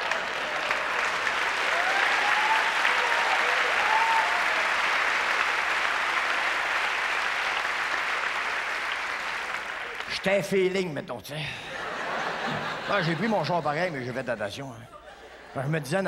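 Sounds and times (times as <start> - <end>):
voices rising over clapping: 0.0 - 10.2
audience applauding: 0.0 - 10.5.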